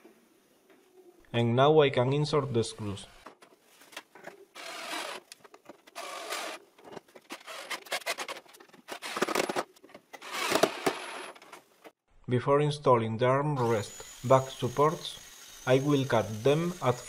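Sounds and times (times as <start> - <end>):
drill driving screws into wood: 4.6 - 6.6, 7.3 - 9.6, 10.2 - 11.4.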